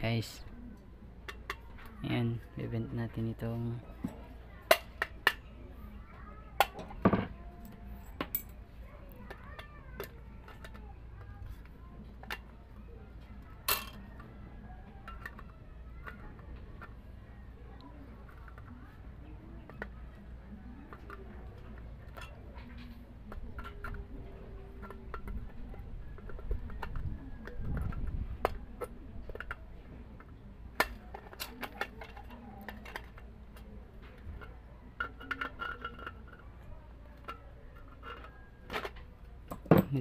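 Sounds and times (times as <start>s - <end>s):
metallic clicks and clinks: 6.6s - 8.6s.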